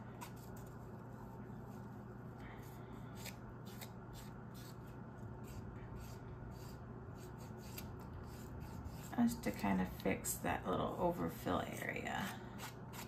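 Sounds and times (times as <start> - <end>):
nail file scratching resin: 3.2 - 4.8, 5.4 - 9.2, 12.6 - 13.0.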